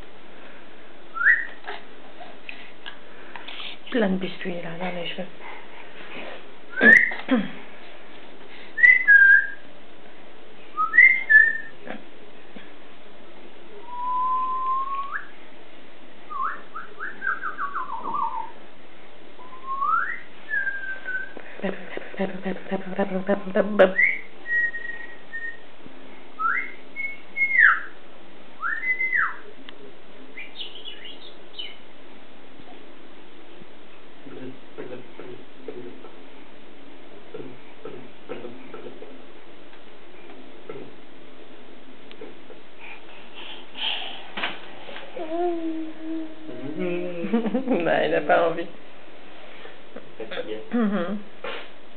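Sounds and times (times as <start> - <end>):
person whistling: 13.9 - 15.2.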